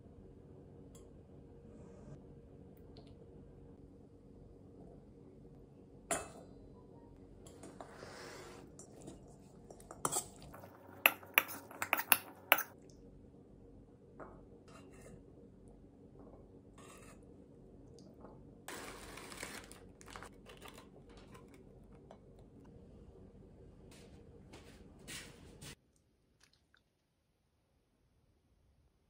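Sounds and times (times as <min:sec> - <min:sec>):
metal spoon clinking in steel bowl: 0:09.7 - 0:12.8.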